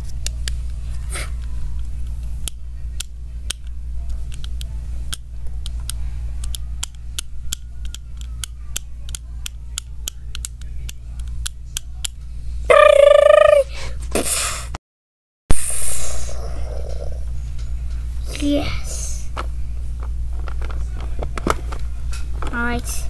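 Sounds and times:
low hum: 15.5s - 22.3s.

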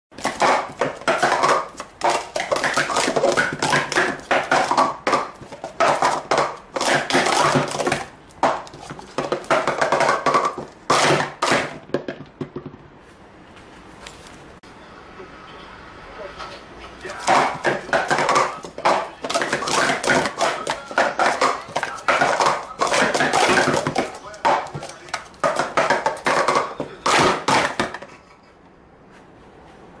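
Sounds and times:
plastic cups clattering: 0.2s - 12.8s, 17.0s - 28.3s.

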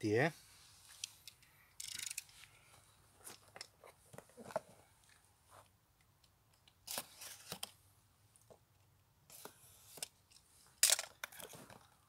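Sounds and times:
knife scraping across tape: 6.8s - 7.6s.

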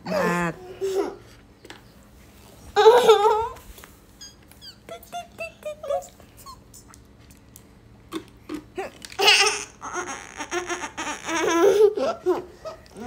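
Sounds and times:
girl giggling: 0.0s - 1.3s, 2.8s - 3.6s, 4.7s - 6.7s, 9.8s - 13.0s.

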